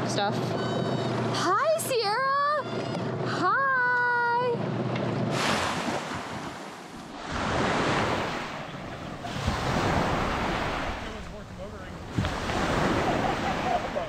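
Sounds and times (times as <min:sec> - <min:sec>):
wind buffeting microphone: 0:04.6 - 0:14.0
waves washing up a beach: 0:05.2 - 0:14.0.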